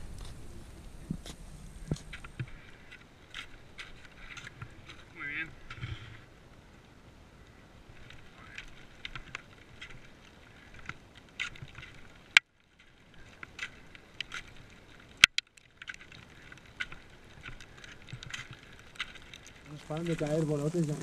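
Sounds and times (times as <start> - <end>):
crunches and scrapes in snow: 0.0 - 2.6, 16.0 - 21.0.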